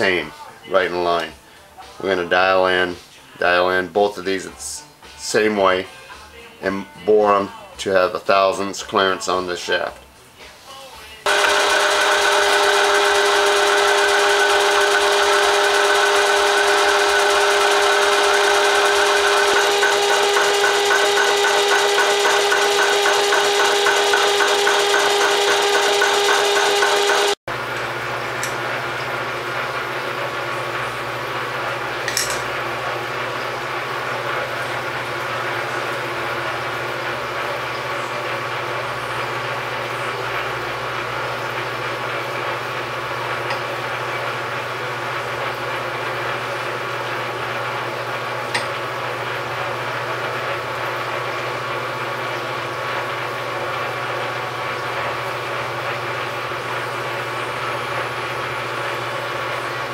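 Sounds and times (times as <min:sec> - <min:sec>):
metal lathe humming: 0:11.3 - 0:35.9.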